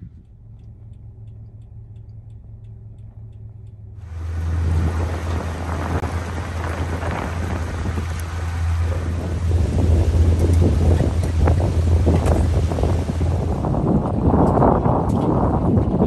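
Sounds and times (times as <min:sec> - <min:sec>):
wind buffeting microphone: 0:00.0 - 0:00.8, 0:04.0 - 0:16.0
faint ticking: 0:00.0 - 0:06.0
boat engine drone: 0:00.0 - 0:16.0
low engine hum: 0:00.0 - 0:16.0.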